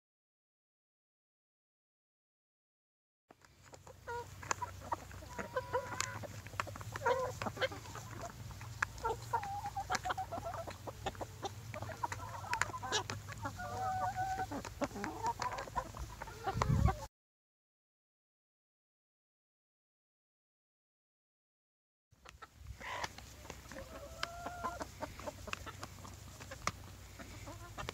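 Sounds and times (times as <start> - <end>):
chickens clucking: 3.4 - 17.1, 22.2 - 27.9.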